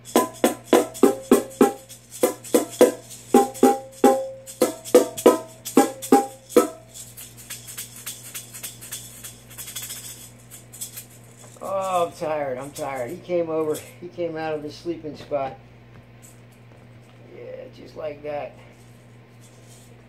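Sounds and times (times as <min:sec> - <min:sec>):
bongo drums: 0:00.0 - 0:07.0
maraca shaken softly: 0:00.0 - 0:14.0, 0:18.7 - 0:20.0.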